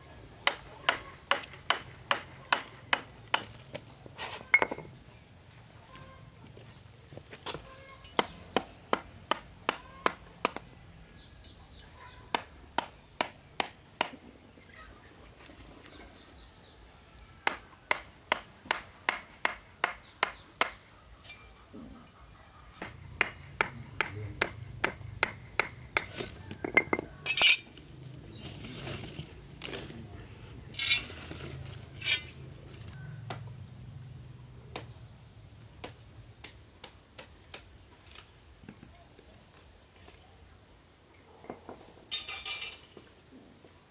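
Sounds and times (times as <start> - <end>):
sharp evenly spaced knocks: 0.4 - 3.5, 8.2 - 10.7, 17.4 - 20.8, 22.8 - 26.2
insect trill: 4.4 - 8.6, 19.7 - 43.9.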